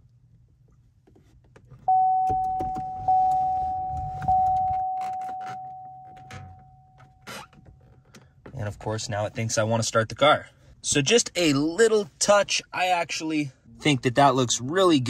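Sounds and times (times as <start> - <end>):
dashboard chime pinging: 1.9 - 7.1.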